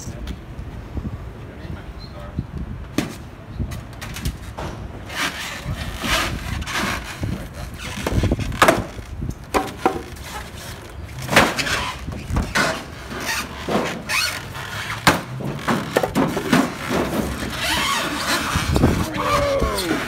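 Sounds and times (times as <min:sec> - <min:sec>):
polystyrene foam squeaking and scraping: 0:05.1 - 0:08.4, 0:11.6 - 0:15.0, 0:16.7 - 0:20.0.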